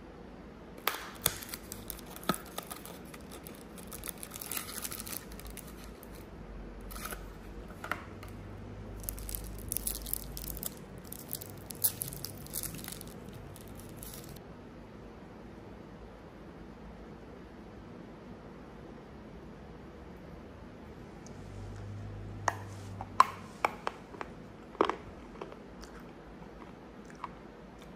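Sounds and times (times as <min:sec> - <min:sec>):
cellophane wrapper crinkling: 0:00.8 - 0:06.3, 0:06.9 - 0:07.4, 0:09.0 - 0:14.4.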